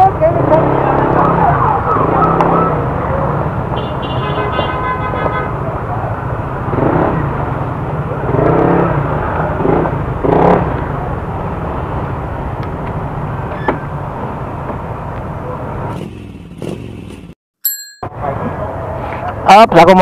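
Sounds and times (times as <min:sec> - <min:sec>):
street noise: 0:00.0 - 0:20.0
vehicle engine: 0:05.5 - 0:17.4.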